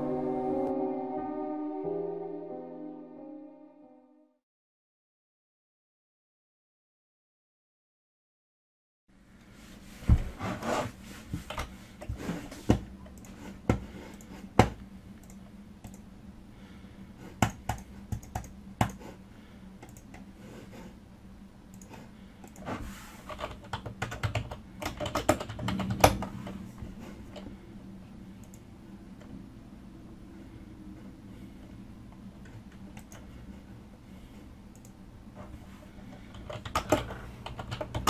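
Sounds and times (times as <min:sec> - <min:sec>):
typing on computer keyboard: 0:17.4 - 0:19.0, 0:23.3 - 0:26.3, 0:36.3 - 0:38.0.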